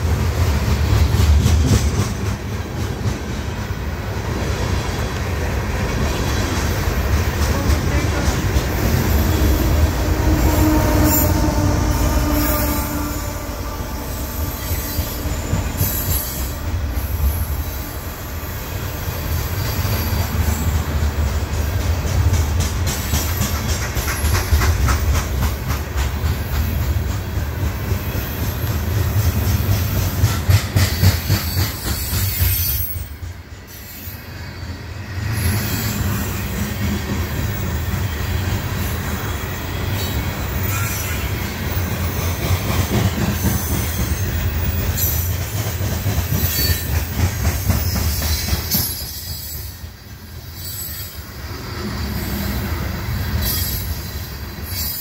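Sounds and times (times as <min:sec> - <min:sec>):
steel wheels rumbling on rails: 0:00.0 - 0:55.0
wheels clicking over rail joints: 0:19.8 - 0:33.4.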